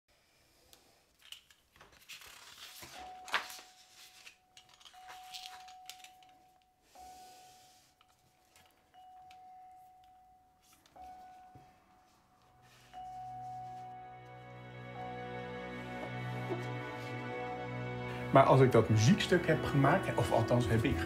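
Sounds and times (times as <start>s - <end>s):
paper rustling and sliding: 1.7s - 6.2s
steady high tone: 8.9s - 21.0s.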